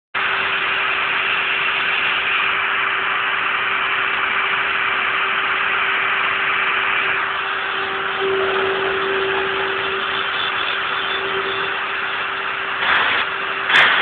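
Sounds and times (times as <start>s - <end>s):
steady hum: 0.2s - 14.0s
router cutting metal hiss: 7.4s - 14.0s.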